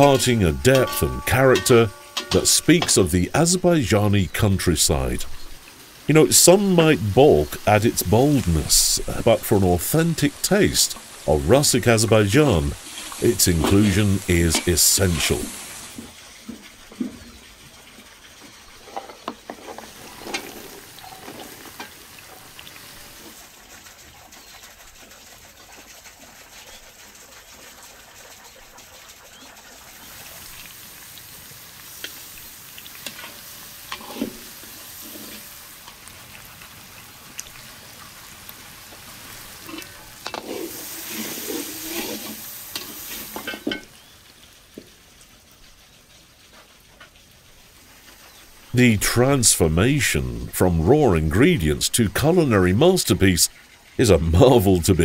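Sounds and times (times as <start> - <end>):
food sizzling in hot oil: 0.0 - 48.8
utensil stirring clicks and scrapes: 39.6 - 43.1.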